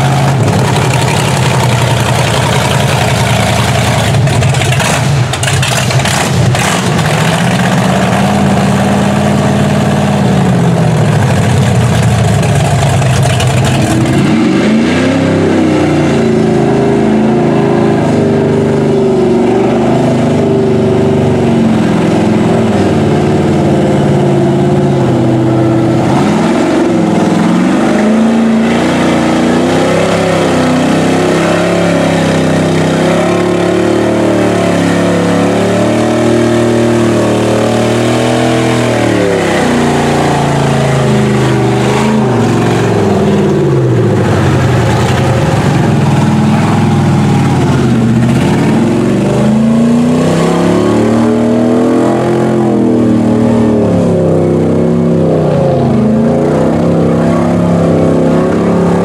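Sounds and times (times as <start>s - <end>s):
truck engine revving: 0.0s - 59.0s
water and mud splashing: 11.0s - 15.6s.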